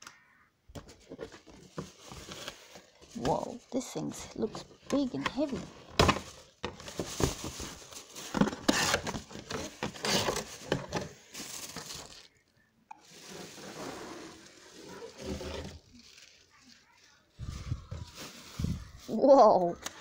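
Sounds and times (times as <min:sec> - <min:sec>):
soft rustling: 0:00.9 - 0:08.9, 0:13.0 - 0:19.8
cardboard box scraping and knocking: 0:04.6 - 0:11.2, 0:13.2 - 0:15.9.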